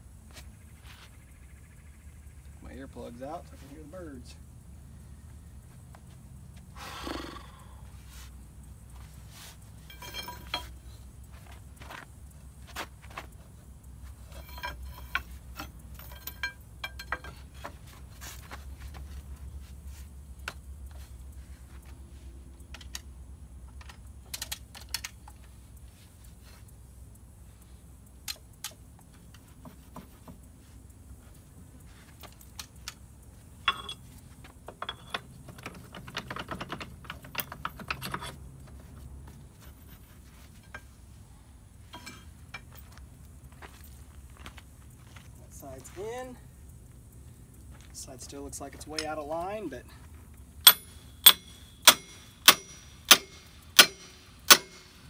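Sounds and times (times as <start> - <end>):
steel tools clinking on metal: 9.8 - 10.8, 14.3 - 17.5, 33.6 - 34.2, 41.9 - 42.8, 50.6 - 55.0.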